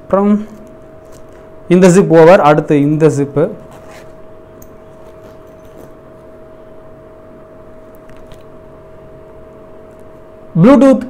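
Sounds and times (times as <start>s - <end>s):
faint steady hum: 0.0s - 11.0s
bag rustling: 3.6s - 6.3s.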